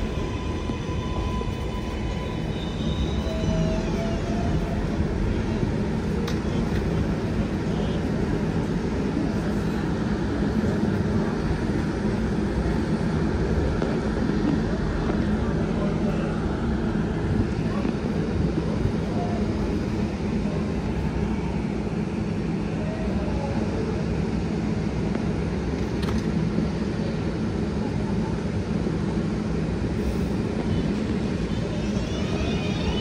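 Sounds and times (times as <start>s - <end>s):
train doors shutting: 0.0s - 7.4s
traction motors whining: 0.0s - 9.6s, 30.0s - 33.0s
subway train equipment humming: 0.0s - 33.0s.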